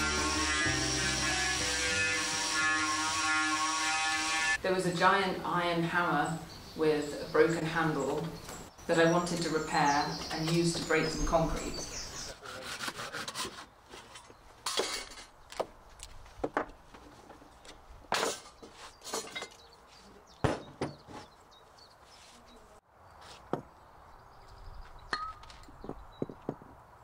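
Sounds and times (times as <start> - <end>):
wooden knocks and scraping: 12.6 - 19.7, 20.4 - 21.4.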